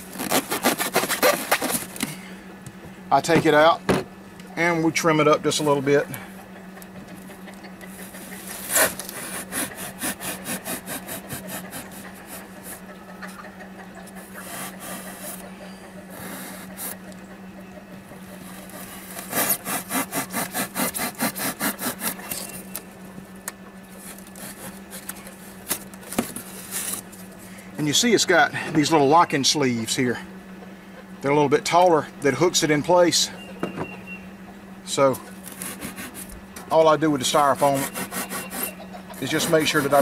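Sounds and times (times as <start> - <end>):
knife sawing through styrofoam: 0.0 - 2.0, 8.1 - 12.8, 14.2 - 15.4, 16.1 - 17.0, 18.4 - 22.6, 24.0 - 25.5, 35.4 - 36.3, 37.3 - 40.0.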